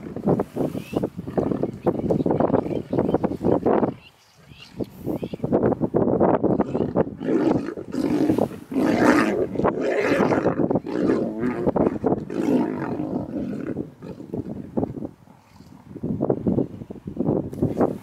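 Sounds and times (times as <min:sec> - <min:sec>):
lionesses growling: 0:06.6 - 0:14.5.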